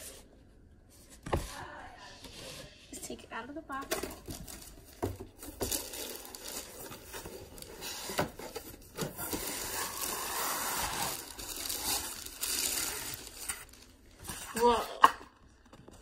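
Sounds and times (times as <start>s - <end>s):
cardboard scraping and rustling: 4.0s - 14.4s.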